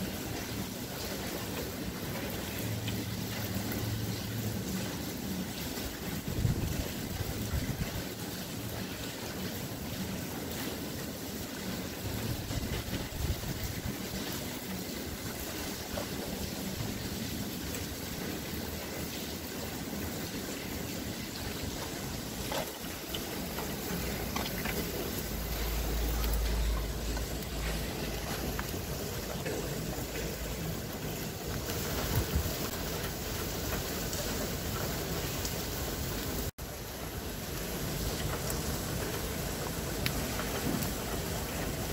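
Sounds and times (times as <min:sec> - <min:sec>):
low rumble: 0:23.6 - 0:30.6.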